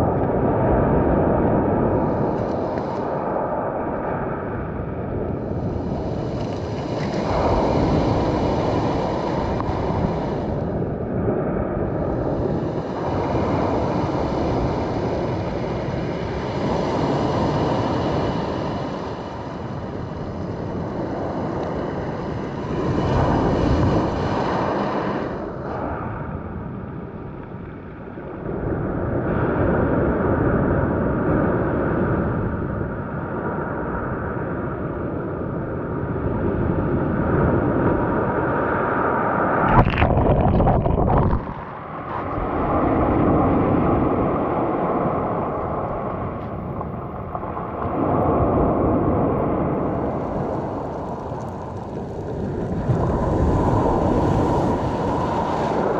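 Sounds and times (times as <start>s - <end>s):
loud wave splash: 39.6s - 42.7s.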